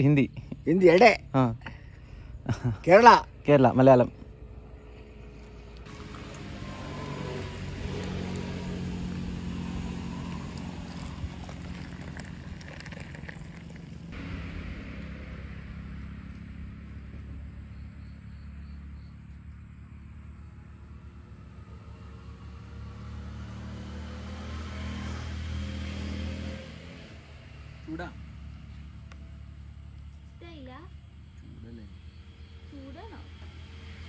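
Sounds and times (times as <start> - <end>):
car engine rumbling: 0.0 - 25.7.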